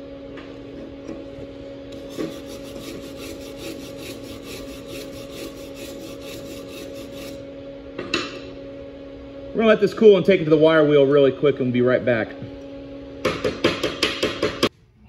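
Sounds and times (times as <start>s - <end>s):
steady low hum: 0.0s - 15.0s
metal tool scraping weld: 2.0s - 7.4s.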